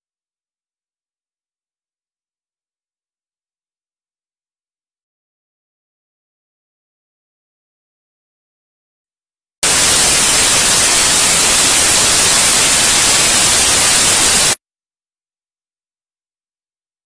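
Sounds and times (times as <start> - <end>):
loud static hiss: 9.6 - 14.6.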